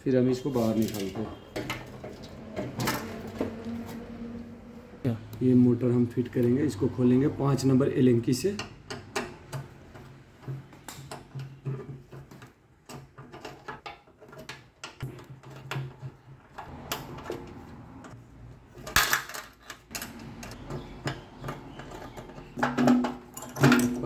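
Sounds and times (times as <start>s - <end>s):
metal clatter: 18.8s - 24.0s.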